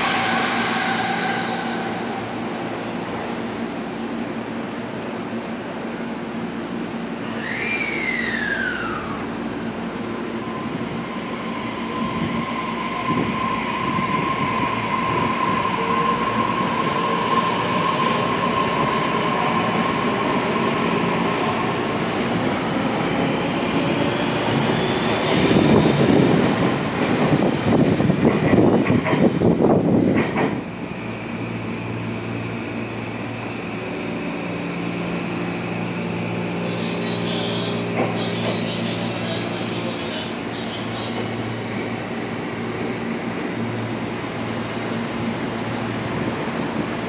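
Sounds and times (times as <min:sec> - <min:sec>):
train wheels rumbling: 0:10.2 - 0:47.0.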